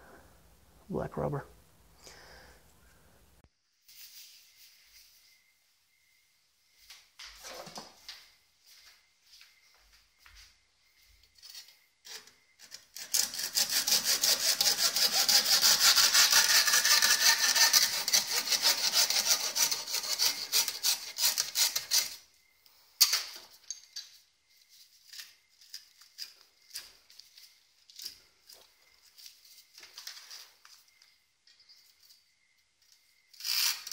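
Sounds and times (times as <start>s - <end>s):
hacksaw cutting braided hose: 11.4s - 22.2s.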